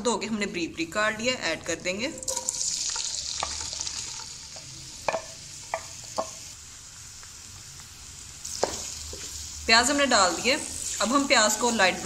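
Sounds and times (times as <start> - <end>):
onions sizzling in hot oil: 2.0 - 12.0.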